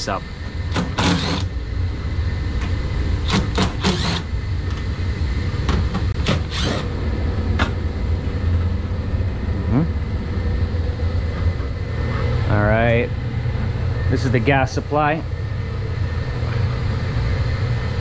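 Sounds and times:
cordless drill bursts: 0.8s - 1.5s, 3.2s - 4.3s, 6.3s - 6.9s.

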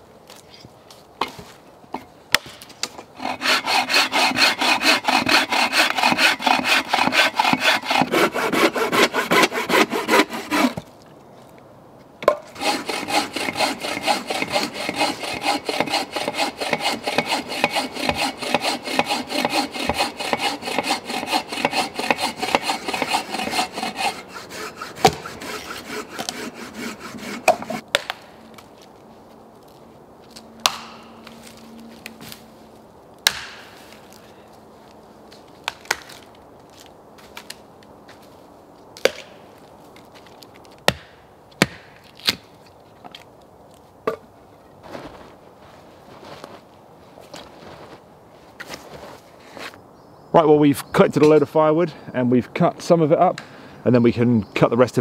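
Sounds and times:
bow saw cutting log: 3.2s - 10.9s, 12.2s - 27.8s.

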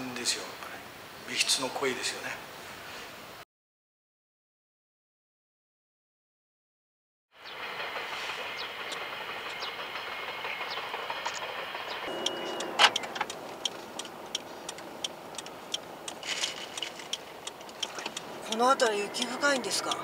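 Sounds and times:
road noise inside car: 7.4s - 20.0s
turn signal ticking: 8.8s - 20.0s.

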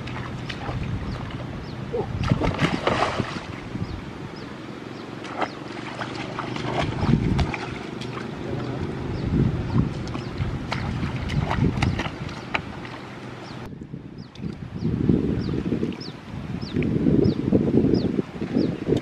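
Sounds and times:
water sloshing and splashing: 0.0s - 4.1s, 4.8s - 13.7s
wind on microphone: 0.0s - 19.0s.

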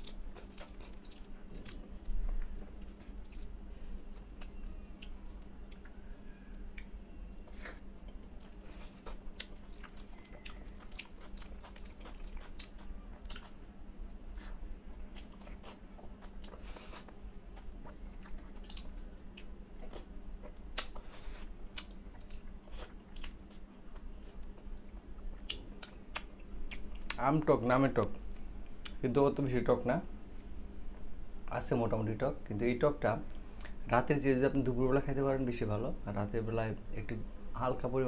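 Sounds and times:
man chewing food: 0.0s - 27.2s
wet mouth clicks and smacks: 25.4s - 27.2s.

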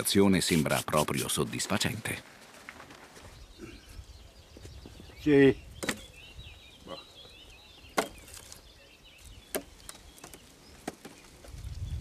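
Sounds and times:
birds chirping faintly: 0.0s - 12.0s
firewood branches knocking: 7.9s - 8.6s, 9.3s - 11.6s.

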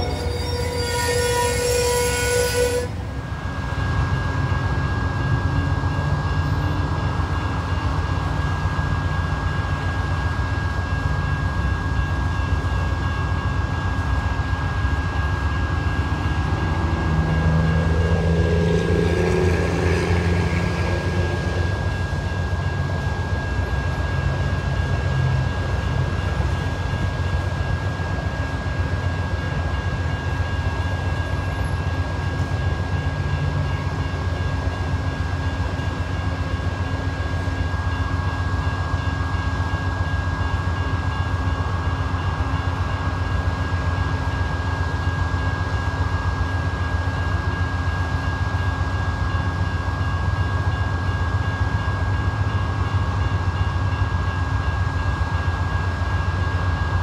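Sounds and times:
engine whine: 0.0s - 40.2s
crossing bell ringing: 0.0s - 57.0s
diesel locomotive rumble: 0.0s - 57.0s.

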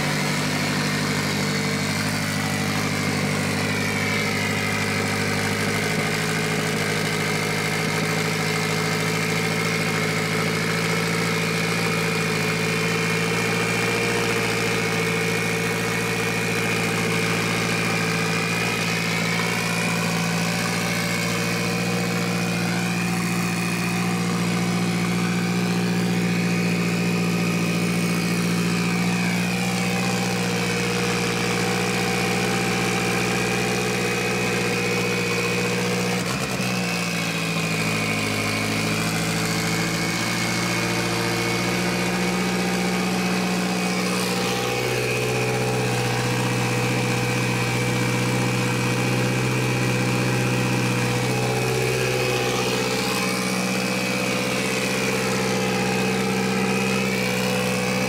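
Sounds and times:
car engine idling: 0.0s - 58.0s.

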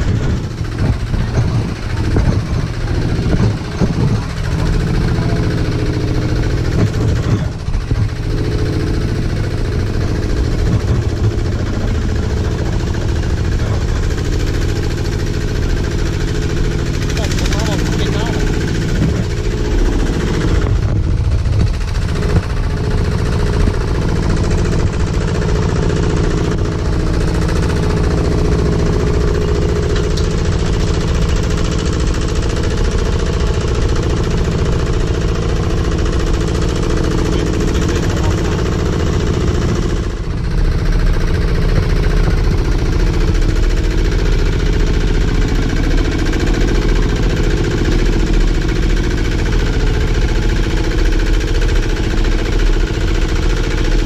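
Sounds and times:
diesel engine chugging: 0.0s - 54.0s.

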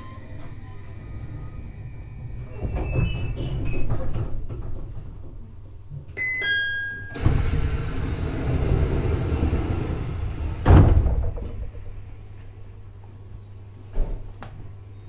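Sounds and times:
train doors sliding: 0.0s - 5.5s, 7.2s - 12.3s
door closing thud: 7.2s - 12.0s.

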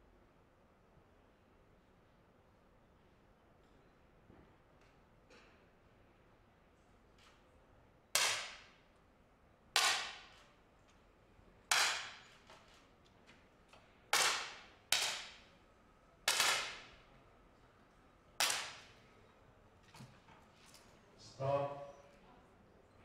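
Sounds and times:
air pistol shots cracking: 14.1s - 15.4s, 16.3s - 16.9s, 18.4s - 18.9s.

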